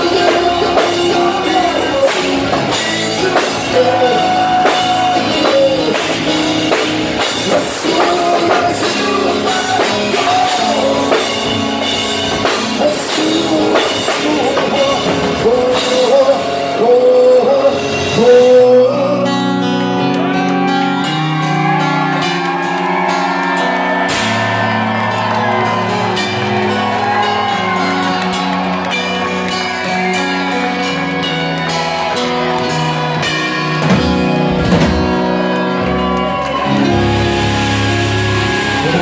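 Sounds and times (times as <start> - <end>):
man singing: 0.0 - 21.0, 36.7 - 39.0
drums: 0.0 - 39.0
electric guitar chords: 0.0 - 39.0.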